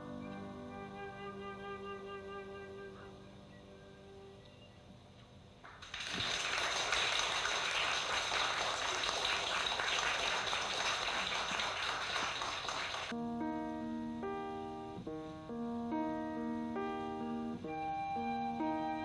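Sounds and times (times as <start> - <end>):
piano notes: 0.0 - 4.6, 13.0 - 19.0
audience applauding: 5.6 - 13.1.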